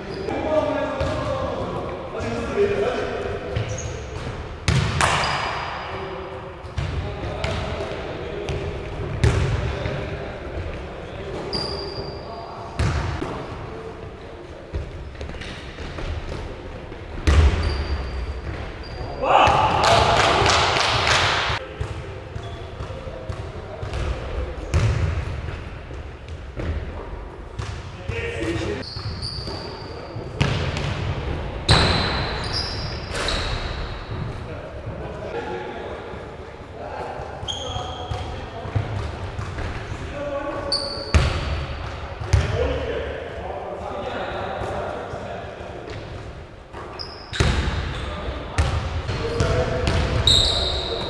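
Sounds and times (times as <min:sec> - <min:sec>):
sneaker squeaks: 0:00.0 - 0:00.4, 0:03.5 - 0:05.9, 0:11.2 - 0:13.0, 0:14.8 - 0:16.1, 0:17.2 - 0:19.2, 0:22.3 - 0:24.0, 0:27.6 - 0:30.5, 0:31.7 - 0:34.4, 0:37.4 - 0:38.5, 0:40.6 - 0:41.4, 0:46.8 - 0:48.7, 0:49.4 - 0:51.0.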